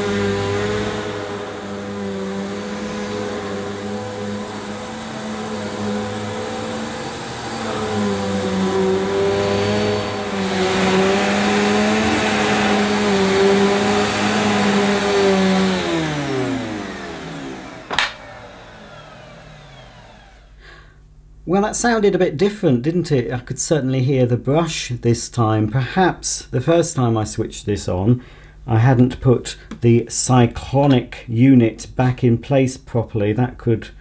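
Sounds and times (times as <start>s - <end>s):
vacuum motor winding down: 0.0s - 20.8s
vacuum cleaner running: 0.0s - 20.9s
sharp knock: 17.9s - 18.2s.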